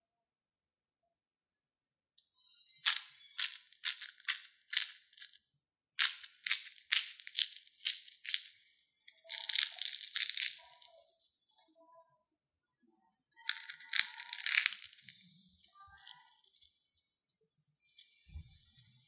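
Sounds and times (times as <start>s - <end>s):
crackling tear of fried cake: 2.8s - 5.4s, 6.0s - 8.6s, 9.3s - 11.1s, 13.5s - 15.2s
fried crust crunching: 2.8s - 5.4s, 6.0s - 8.6s, 9.3s - 11.2s, 13.5s - 15.2s.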